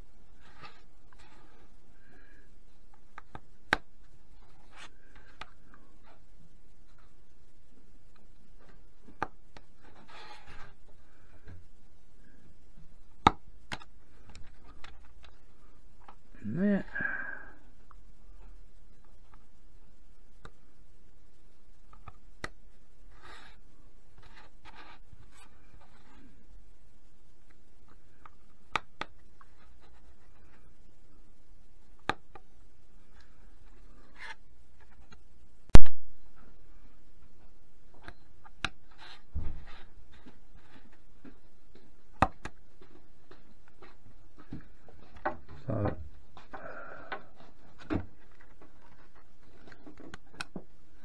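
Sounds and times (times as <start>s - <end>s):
sharp loud snap: 35.7s - 36.1s.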